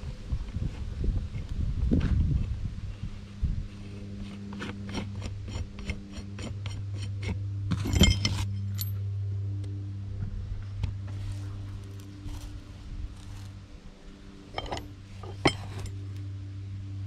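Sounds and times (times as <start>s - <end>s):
steady low hum: 0.0s - 17.0s
ringing metal clink: 7.8s - 9.0s, 14.5s - 16.0s.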